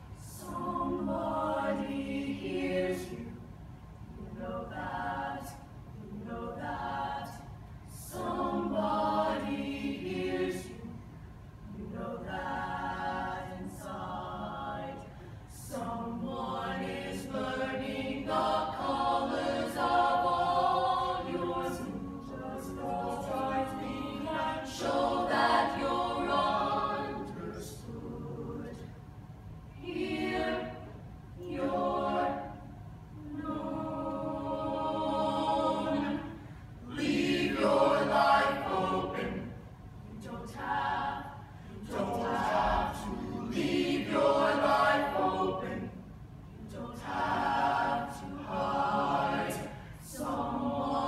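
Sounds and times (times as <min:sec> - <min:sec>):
choir singing in harmony: 0:00.0 - 0:51.0.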